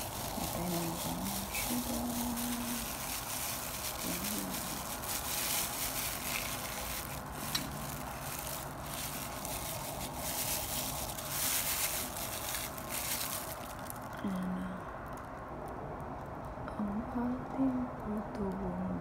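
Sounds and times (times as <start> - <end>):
plastic bag crinkling: 0.0 - 14.3.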